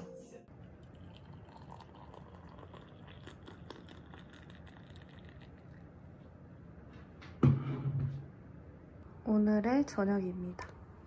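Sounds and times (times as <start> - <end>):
water poured into mug: 0.5 - 6.0.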